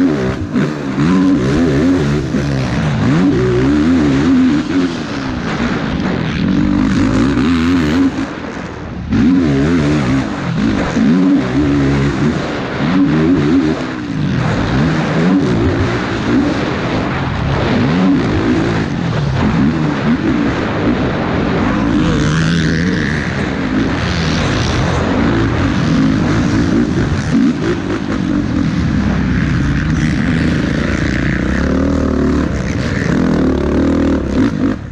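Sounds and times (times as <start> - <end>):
motorbike engine revving: 0.0 - 34.9.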